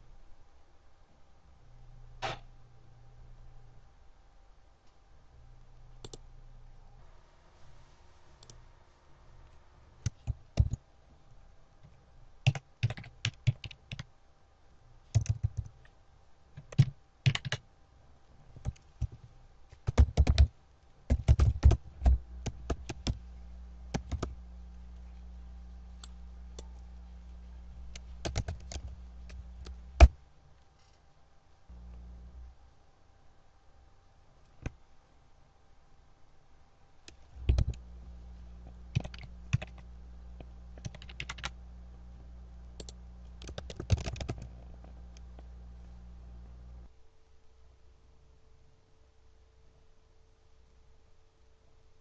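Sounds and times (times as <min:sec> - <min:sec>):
computer keyboard typing: 0:10.0 - 0:10.8, 0:12.4 - 0:14.1, 0:15.1 - 0:15.9, 0:16.6 - 0:17.6, 0:18.6 - 0:20.5, 0:21.1 - 0:23.2, 0:23.9 - 0:24.4, 0:27.9 - 0:30.2, 0:37.1 - 0:37.8, 0:38.9 - 0:39.9, 0:40.8 - 0:41.6, 0:42.8 - 0:44.9.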